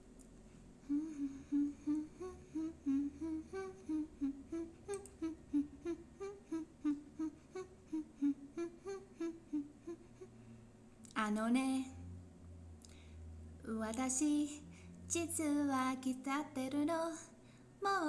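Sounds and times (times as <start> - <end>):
woman humming: 0.8 - 10.4.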